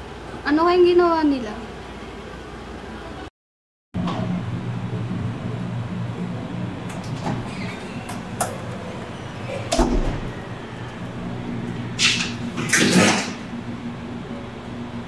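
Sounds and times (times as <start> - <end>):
steady low hum: 4.0 - 15.0.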